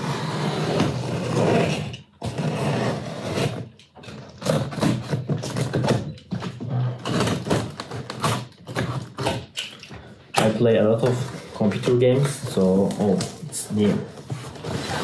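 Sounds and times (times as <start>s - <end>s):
cardboard scraping and rustling: 10.7s - 15.0s.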